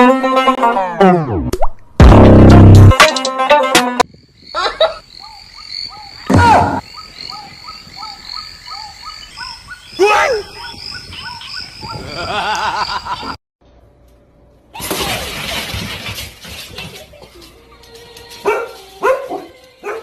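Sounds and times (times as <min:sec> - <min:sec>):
frogs croaking: 0:04.2 - 0:13.2.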